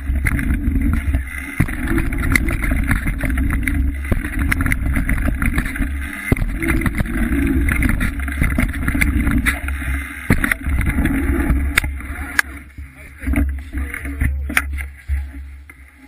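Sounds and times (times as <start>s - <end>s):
bike rattling and knocking: 0.0s - 12.6s
bike tyre noise: 0.0s - 16.0s.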